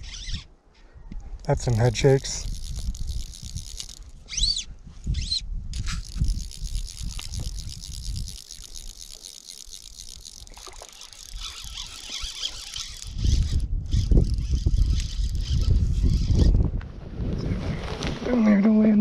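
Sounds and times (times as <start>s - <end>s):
short squeaky chirps: 0.0s - 0.5s, 4.2s - 6.2s, 10.8s - 16.5s
wind buffeting microphone: 0.0s - 9.2s, 11.2s - 19.0s
fly reel click drag ratcheting: 1.7s - 16.4s.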